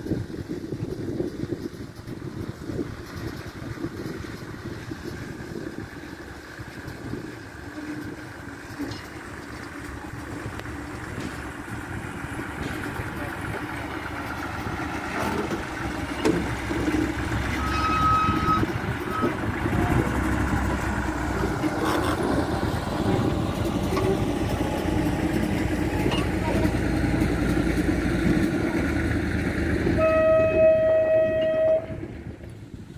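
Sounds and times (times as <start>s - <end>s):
diesel locomotive engine running: 0.0s - 32.9s
short high tone: 17.6s - 19.4s, 30.0s - 32.0s.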